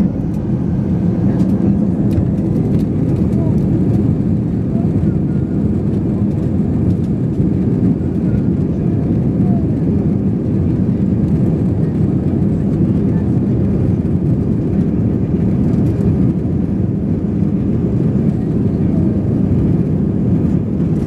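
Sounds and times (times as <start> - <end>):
runway rumble under wheels: 0.0 - 5.0
jet engines rumbling: 0.0 - 21.0.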